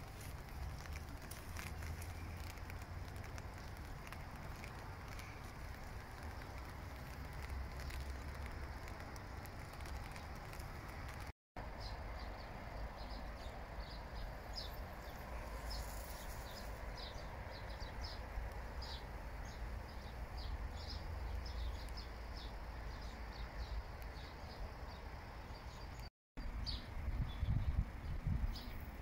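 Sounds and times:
low outdoor rumble: 0.0 - 25.8
small birds chirping: 0.0 - 29.0.

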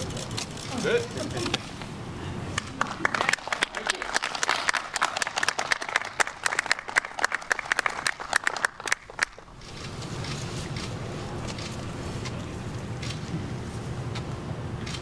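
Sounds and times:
people applauding: 2.5 - 9.5.

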